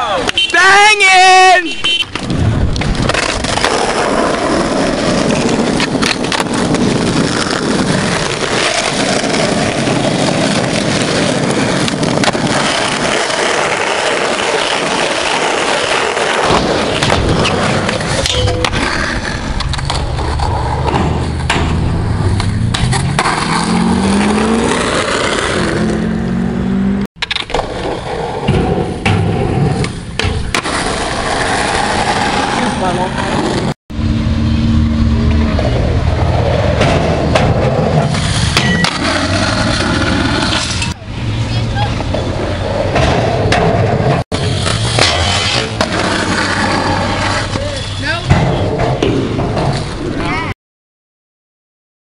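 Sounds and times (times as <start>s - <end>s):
skateboard wheels rolling on asphalt: 0.0s - 33.8s, 34.8s - 50.5s
skateboard clacking on ground: 1.8s - 23.5s, 27.2s - 30.8s.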